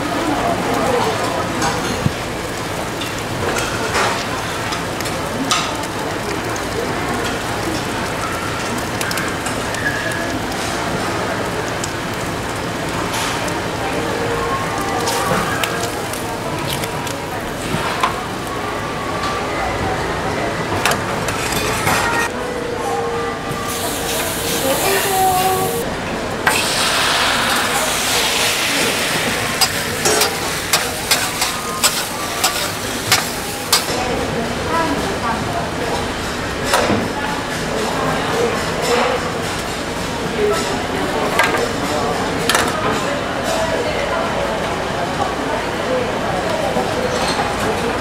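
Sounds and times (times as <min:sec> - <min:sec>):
food sizzling on a griddle: 0:00.0 - 0:22.3, 0:23.6 - 0:25.9, 0:26.5 - 0:42.7
small crackles and clicks: 0:14.9 - 0:18.2.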